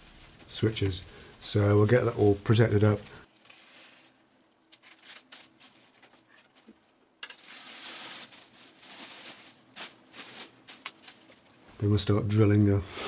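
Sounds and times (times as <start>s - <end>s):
plastic sheeting crinkling: 4.8s - 11.7s.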